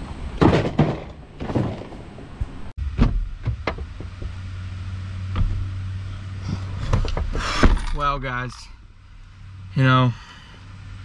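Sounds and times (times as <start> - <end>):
steady low hum: 2.0 - 11.0.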